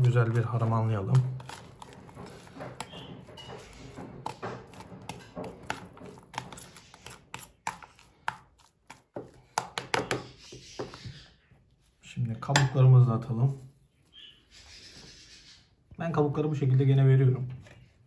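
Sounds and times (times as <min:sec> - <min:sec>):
fork mashing moist mixture: 0:00.0 - 0:11.3.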